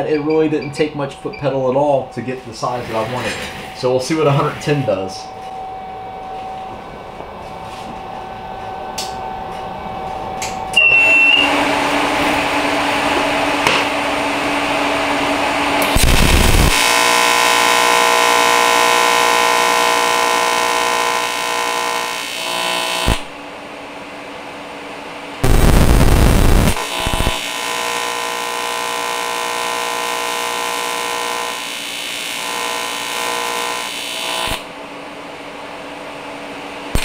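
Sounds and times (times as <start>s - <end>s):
welding arc buzzing: 15.8s - 23.4s, 25.4s - 34.7s.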